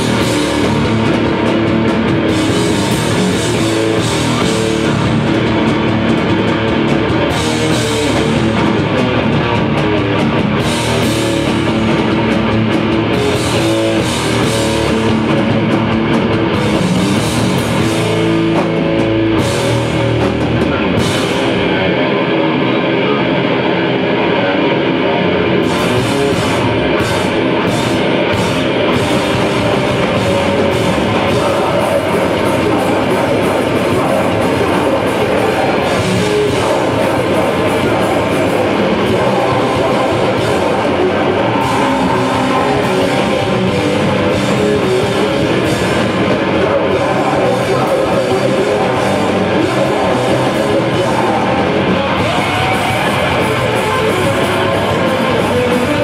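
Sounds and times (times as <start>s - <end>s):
metal band playing loud: 0.0s - 56.0s.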